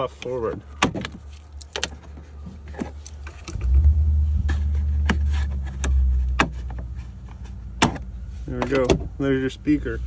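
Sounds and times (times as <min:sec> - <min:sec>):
low rumble: 0:03.4 - 0:06.6.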